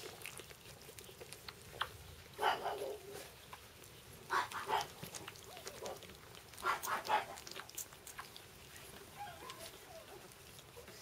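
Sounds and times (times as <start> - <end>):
faint clicks of puppies moving: 0.0 - 11.0
puppies squeaking and whimpering: 4.3 - 11.0.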